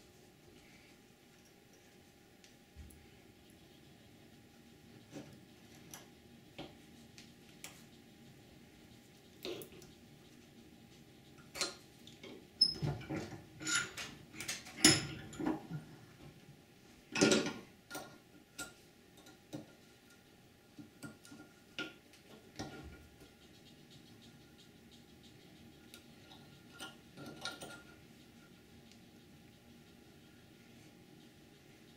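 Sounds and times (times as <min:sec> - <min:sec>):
wire clicking and scraping on metal: 0:11.4 - 0:15.8, 0:17.2 - 0:29.2.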